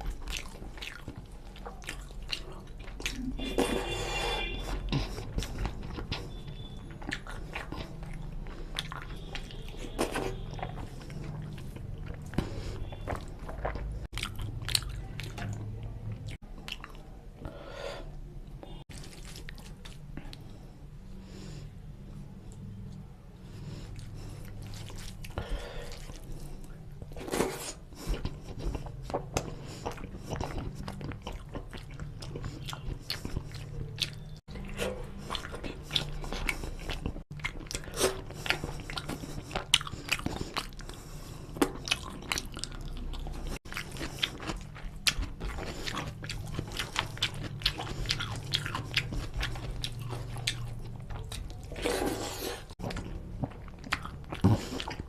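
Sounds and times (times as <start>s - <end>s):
wet chewing and lip smacks: 4.6s - 17.1s, 23.8s - 55.0s.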